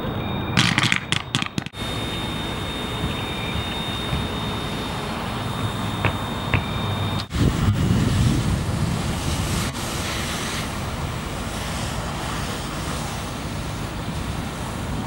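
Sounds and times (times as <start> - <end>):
wind buffeting microphone: 2.6 - 15.0
fire hose spraying water: 7.3 - 15.0.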